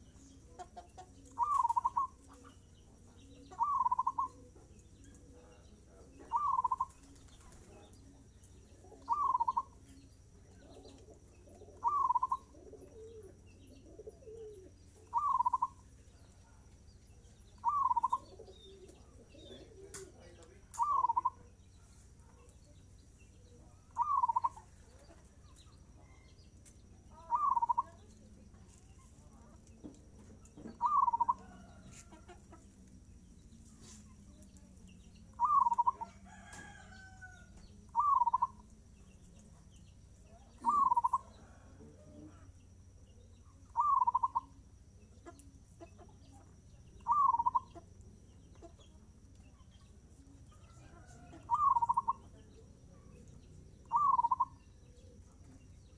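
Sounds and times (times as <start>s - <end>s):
dove cooing: 0.0s - 7.8s, 8.7s - 9.9s, 10.5s - 15.9s, 17.6s - 21.5s, 23.5s - 24.7s, 27.1s - 28.0s, 30.7s - 31.8s, 35.3s - 37.2s, 37.9s - 38.6s, 40.5s - 42.4s, 43.7s - 44.6s, 47.0s - 47.8s, 50.8s - 52.2s, 53.8s - 55.5s.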